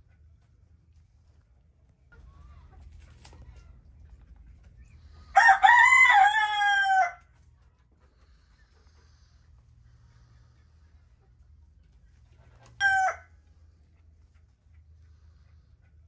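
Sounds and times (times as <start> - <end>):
rooster crowing: 5.3 - 7.3, 12.7 - 13.3.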